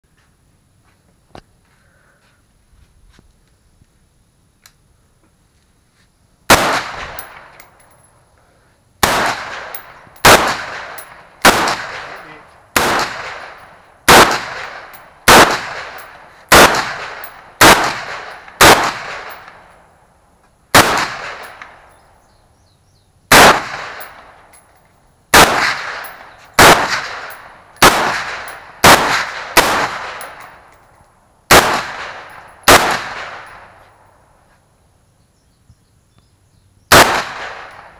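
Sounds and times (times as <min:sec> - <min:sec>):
rifle shots echoing: 0:06.5 - 0:07.8, 0:09.0 - 0:19.7, 0:20.7 - 0:21.9, 0:23.3 - 0:24.6, 0:25.3 - 0:30.7, 0:31.5 - 0:33.8, 0:36.9 - 0:37.9.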